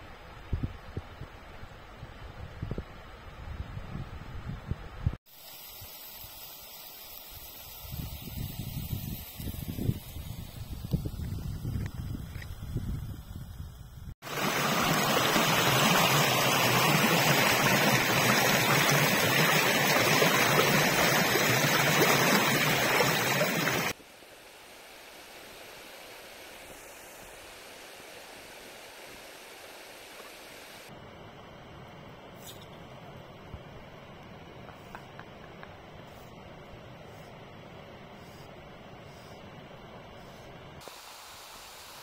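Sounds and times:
river rushing over rocks: 14.2s - 24.0s.

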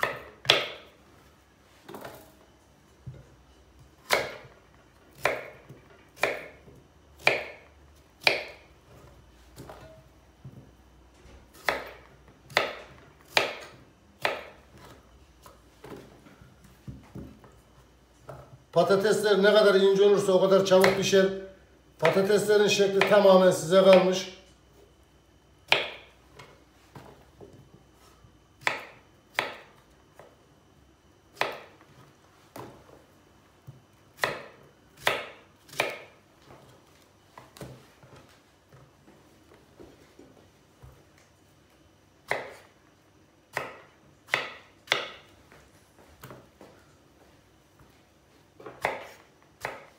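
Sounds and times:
knife slicing potato: 4.0s - 4.5s, 5.1s - 5.6s, 6.2s - 6.6s, 7.2s - 7.6s, 8.2s - 8.6s, 11.5s - 15.5s, 31.3s - 31.8s, 34.2s - 36.1s, 42.2s - 42.8s, 48.7s - 49.9s.

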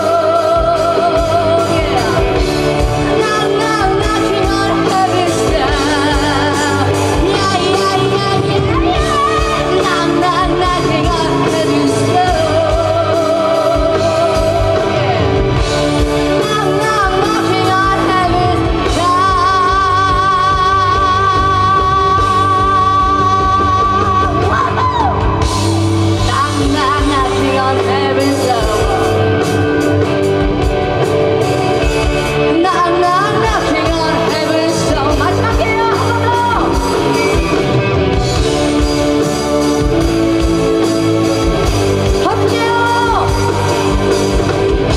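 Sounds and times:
live rock band playing: 0.0s - 44.9s
woman singing wailing: 16.4s - 29.3s.

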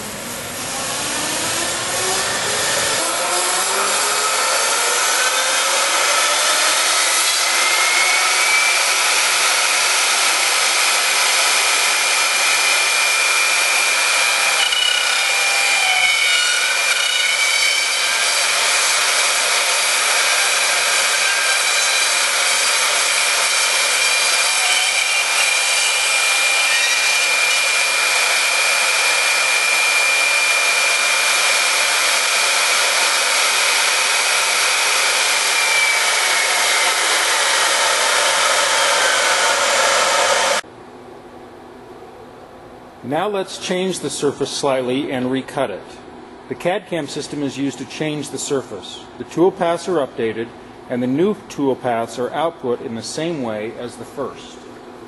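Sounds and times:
router spindle whine: 0.0s - 40.6s
hiss of cutting: 15.9s - 40.6s.

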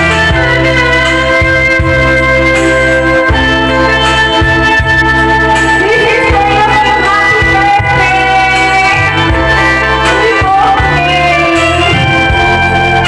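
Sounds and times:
karaoke backing track: 0.0s - 13.0s
woman singing into microphone: 3.4s - 13.0s.

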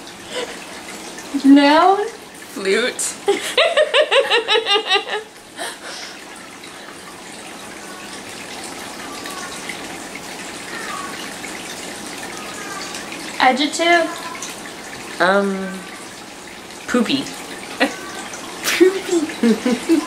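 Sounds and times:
people laughing: 3.3s - 5.8s, 19.4s - 20.0s.

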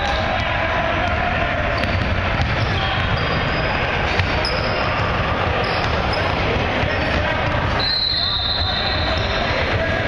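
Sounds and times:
busy gym din: 0.0s - 10.0s
basketball bouncing on wooden floor: 1.8s - 3.5s.

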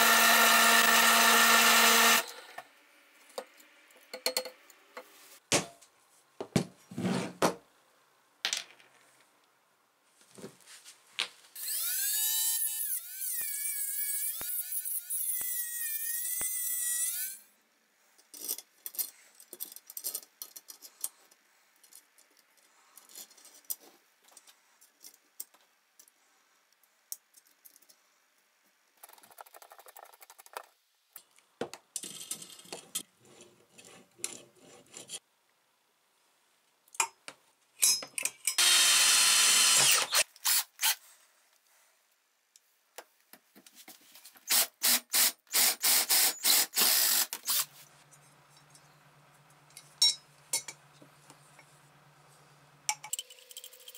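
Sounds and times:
cordless power drill running: 0.0s - 2.5s, 38.6s - 41.0s, 44.5s - 47.7s
small metal parts clicking: 18.2s - 21.2s.

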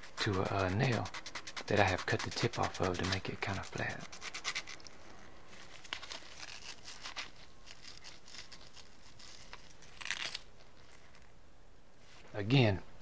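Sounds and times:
sandpaper scraping on metal: 0.0s - 4.7s.

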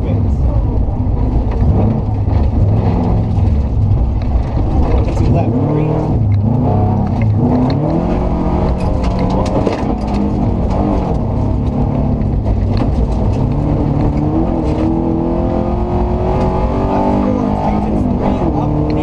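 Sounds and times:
knocks and clatter from rough road: 0.0s - 15.1s
rally car engine revving: 0.0s - 19.0s.

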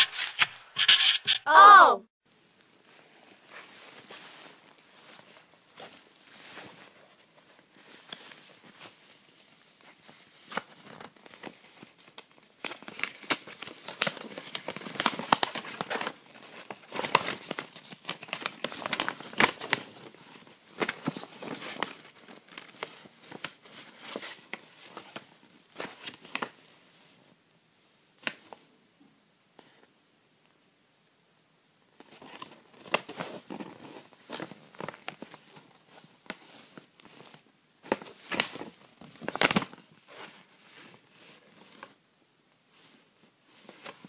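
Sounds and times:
paper sheet rustling: 0.0s - 1.6s, 3.5s - 26.6s.

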